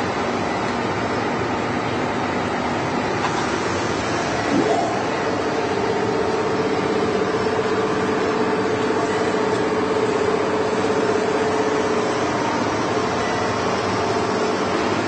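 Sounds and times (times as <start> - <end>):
knife grinding machine running: 3.7 - 15.0.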